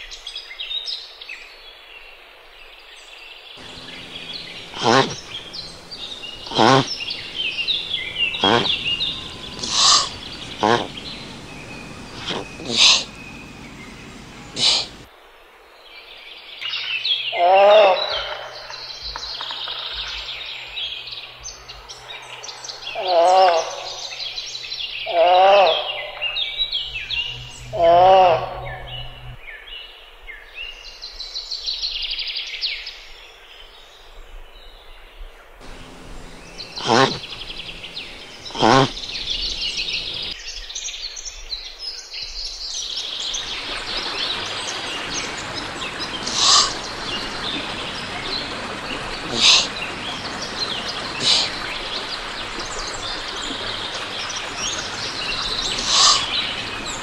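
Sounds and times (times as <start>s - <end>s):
harsh bird calls: 3.6s - 15.1s, 35.6s - 40.4s, 43.0s - 57.0s
small birds chirping: 3.6s - 15.1s, 35.6s - 40.4s, 42.9s - 57.0s
songbird singing: 3.6s - 15.1s, 18.6s - 29.8s, 35.6s - 40.7s, 42.6s - 57.0s
outdoor background hiss: 3.6s - 15.8s, 35.6s - 40.4s, 42.8s - 57.0s.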